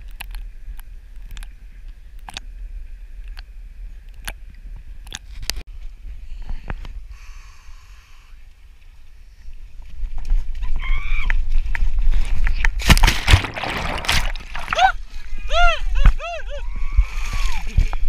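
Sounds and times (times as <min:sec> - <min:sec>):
water sloshing and splashing: 0:12.8 - 0:15.2.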